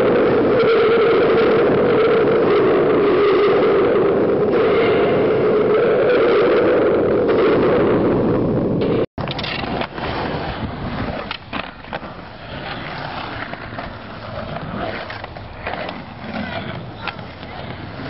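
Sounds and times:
skateboard wheels rolling on concrete: 0.0s - 18.0s
skateboard clacking and landing: 8.8s - 18.0s.

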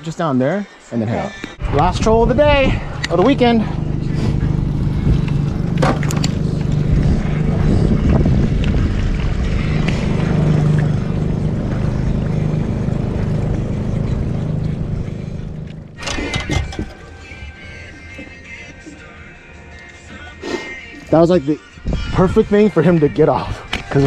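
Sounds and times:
music: 0.0s - 24.0s
wind rumble on microphone: 1.6s - 14.6s, 21.8s - 22.6s
outboard motor humming: 1.6s - 19.2s.

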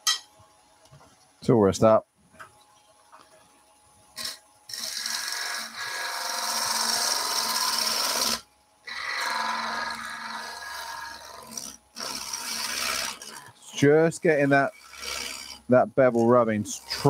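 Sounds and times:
low lathe hum: 4.2s - 17.0s
lathe gouge cutting wood: 4.7s - 15.6s, 16.7s - 17.0s.

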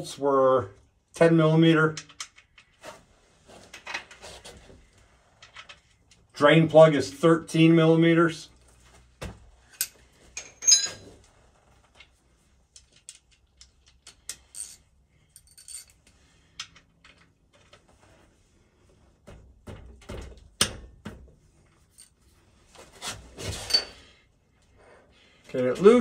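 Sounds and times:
metal hand tools clinking: 9.8s - 11.1s.

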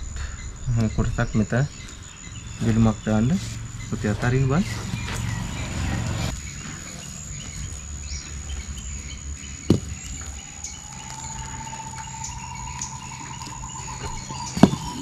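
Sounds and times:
birds chirping: 0.0s - 15.0s
high insect whine: 0.0s - 15.0s
faint trilling note: 10.2s - 15.0s.

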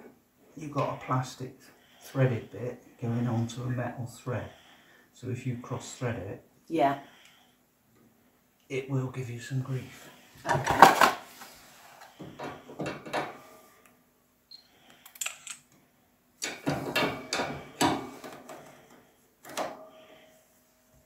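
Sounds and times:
pliers clicking and knocking: 16.4s - 18.0s.

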